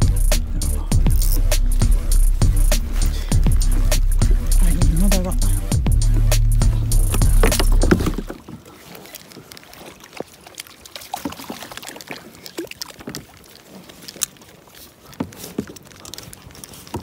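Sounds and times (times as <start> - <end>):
water splashing against kayak: 0.0 - 17.0
gear knocking and clicking: 1.0 - 1.5, 3.4 - 8.4.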